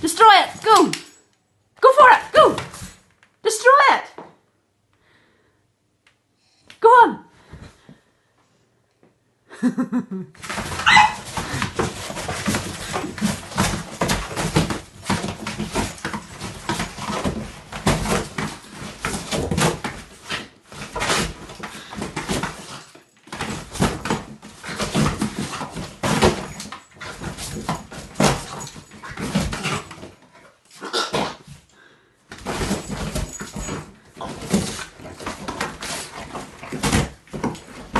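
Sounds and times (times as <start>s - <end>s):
dog tearing cardboard: 10.4s - 30.2s, 32.3s - 37.9s
dog noises: 10.6s - 11.8s.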